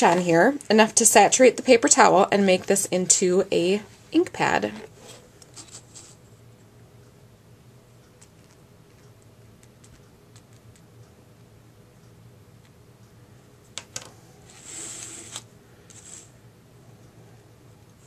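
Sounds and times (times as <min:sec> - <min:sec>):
scraping hiss: 0:14.5 - 0:16.4.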